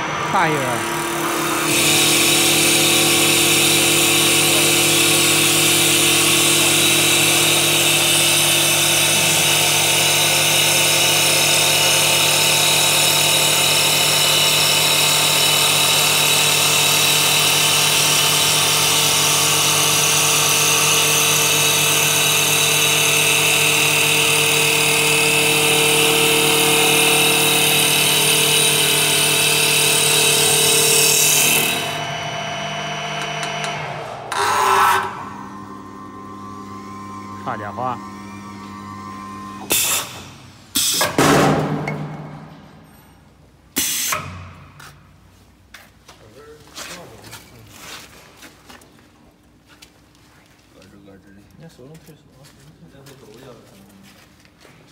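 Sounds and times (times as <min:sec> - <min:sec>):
wood lathe machine hum: 0:00.0 - 0:39.7.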